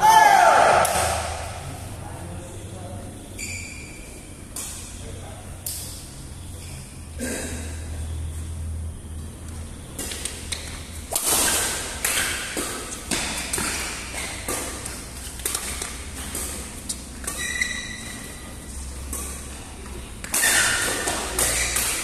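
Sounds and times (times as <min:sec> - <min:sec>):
rackets striking shuttlecock: 0:00.7 - 0:01.6, 0:04.4 - 0:04.9, 0:10.0 - 0:22.0
shoe squeak: 0:03.2 - 0:04.5, 0:16.1 - 0:19.0, 0:20.3 - 0:22.0.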